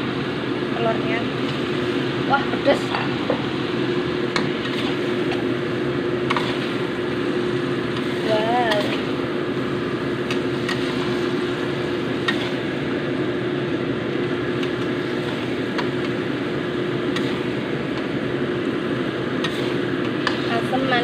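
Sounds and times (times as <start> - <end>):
spatula scraping a wok: 4.4 - 5.4, 6.2 - 6.9, 10.3 - 12.7, 19.4 - 20.7.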